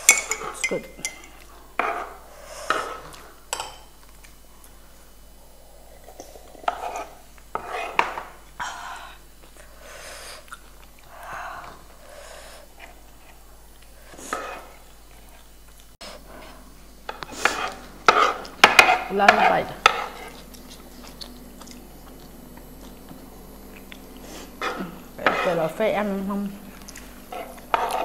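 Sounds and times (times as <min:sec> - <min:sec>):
metal spoons scraping wooden board: 0:25.2 - 0:25.7.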